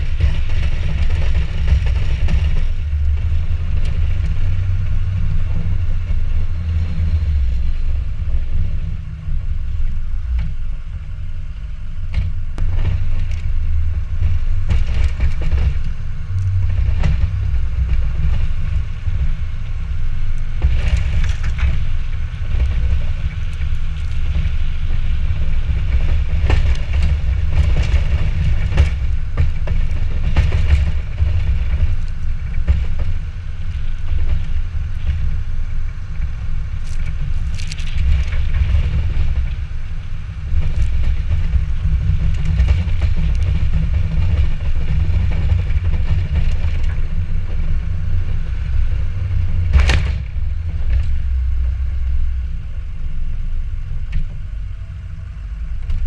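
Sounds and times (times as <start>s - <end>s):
diesel truck engine rumble: 0.0s - 56.0s
sharp knocks and clatter: 22.5s - 35.3s.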